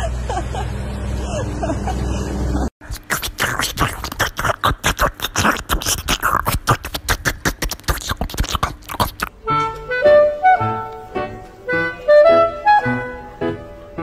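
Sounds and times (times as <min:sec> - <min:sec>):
dog smacking and chewing: 0:02.9 - 0:09.3
woodwind tune: 0:09.3 - 0:14.0.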